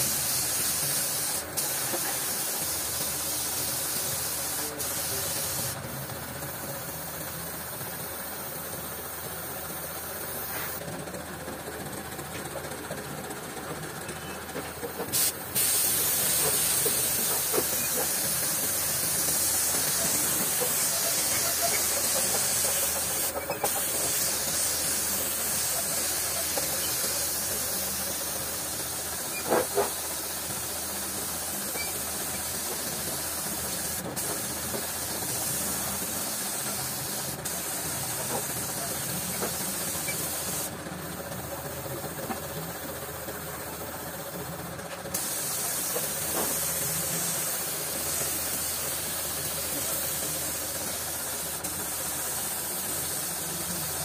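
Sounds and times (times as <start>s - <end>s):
spray gun hissing: 0.0s - 5.8s, 8.0s - 10.8s, 15.1s - 40.7s, 45.1s - 54.0s.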